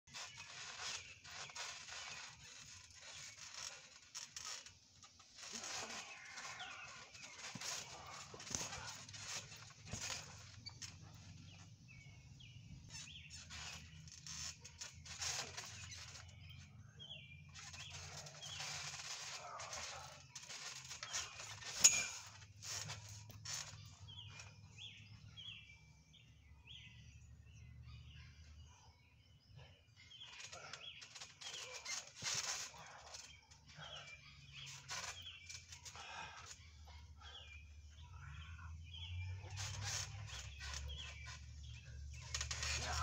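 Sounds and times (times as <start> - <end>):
small birds chirping: 0.1 - 43.0
bodies landing on trampoline: 1.8 - 11.7.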